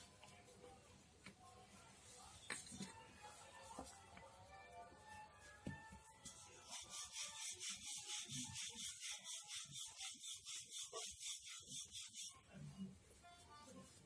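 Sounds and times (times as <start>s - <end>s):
rolling pin rubbing over dough: 5.0s - 14.0s.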